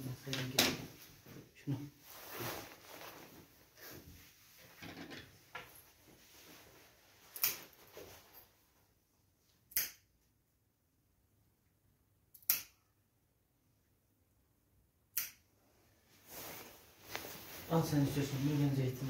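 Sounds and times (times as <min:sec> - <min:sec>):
nail clippers snipping claws: 0:07.4 - 0:07.6, 0:09.7 - 0:10.0, 0:12.3 - 0:12.8, 0:15.1 - 0:15.4.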